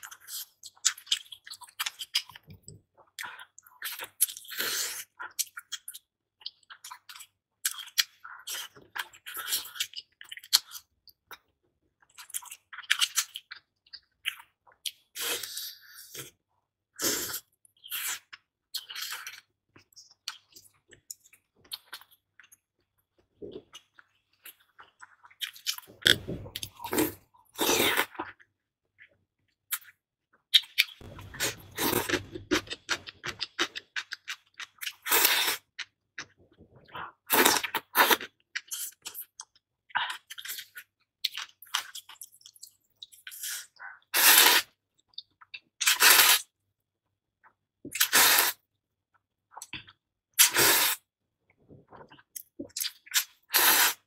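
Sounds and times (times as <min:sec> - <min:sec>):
slurping noodles: 0:35.0 - 0:35.7, 0:43.3 - 0:44.8, 0:45.9 - 0:46.5, 0:48.0 - 0:48.6, 0:50.4 - 0:51.0, 0:53.2 - 0:54.0.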